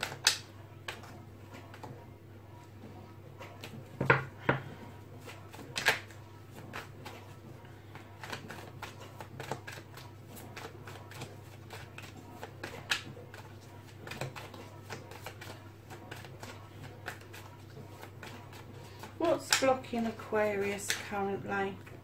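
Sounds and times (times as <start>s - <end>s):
low steady hum: 0.0s - 22.0s
cards being shuffled: 5.2s - 19.7s.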